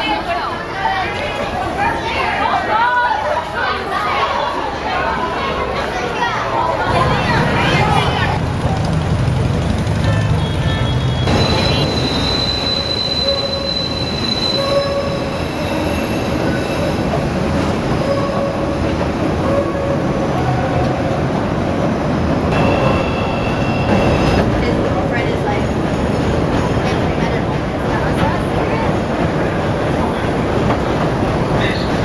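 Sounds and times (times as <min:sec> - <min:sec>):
elevated train rumbling: 0:00.0 - 0:32.0
high-pitched wheel squeal: 0:10.4 - 0:17.1.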